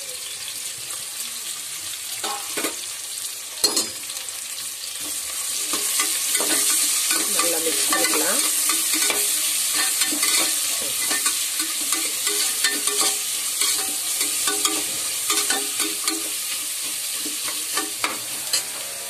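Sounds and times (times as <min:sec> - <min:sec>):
onions sizzling in oil: 0:00.0 - 0:19.0
spoon scraping a pan: 0:05.0 - 0:19.0.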